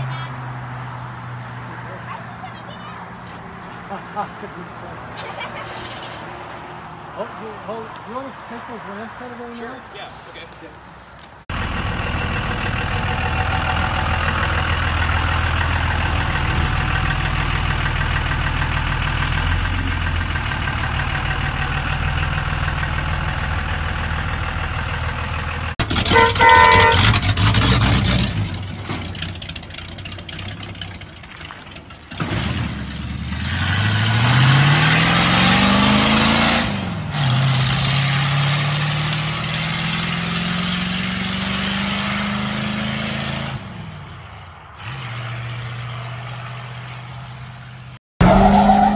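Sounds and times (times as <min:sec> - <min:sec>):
pickup truck engine running: 0:11.5 - 0:27.6
truck accelerating hard: 0:11.5 - 0:48.9
horn-like blast: 0:26.1 - 0:27.2.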